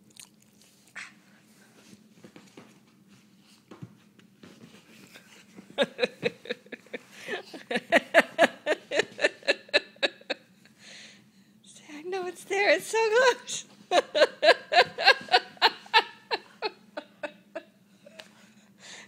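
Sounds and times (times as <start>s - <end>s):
woman laughing: 5.7s - 10.5s, 13.0s - 18.2s.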